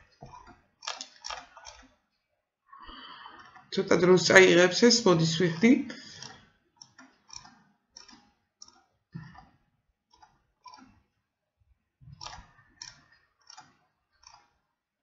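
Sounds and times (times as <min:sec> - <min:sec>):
computer mouse clicks: 0:00.0 - 0:01.9, 0:05.5 - 0:11.1, 0:12.1 - 0:14.6.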